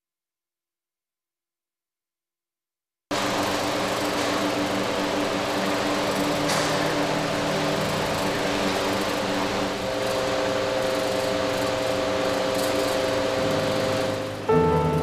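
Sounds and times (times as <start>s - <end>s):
steady mechanical hum: 3.1s - 15.0s.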